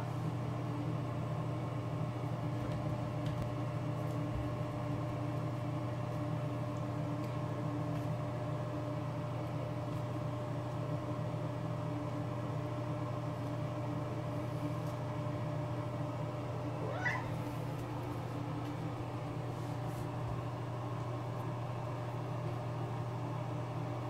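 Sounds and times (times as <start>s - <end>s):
steady background hum: 0.0s - 24.0s
cat meowing: 16.8s - 17.6s.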